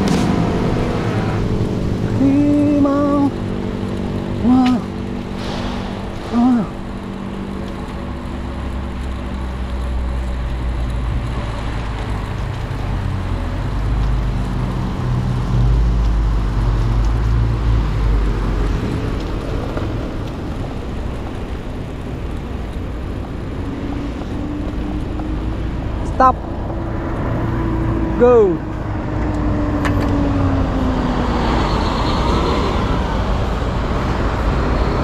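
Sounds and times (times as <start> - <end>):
wind rush: 0.0 - 8.2
low rumble: 0.0 - 31.9
bicycle rolling noise: 0.0 - 35.0
car traffic: 0.0 - 35.0.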